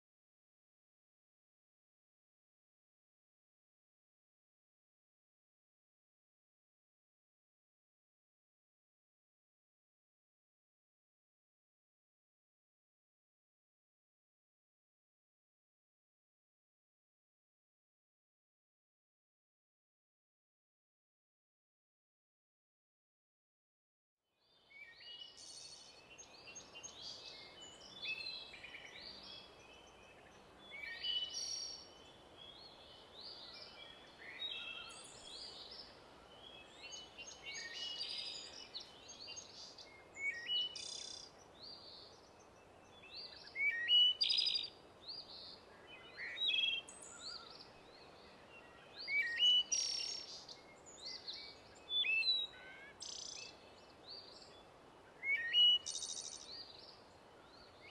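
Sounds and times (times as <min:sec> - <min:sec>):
faint steady background hiss: 0:24.4 - 0:57.9
birds singing and calling: 0:24.5 - 0:57.9.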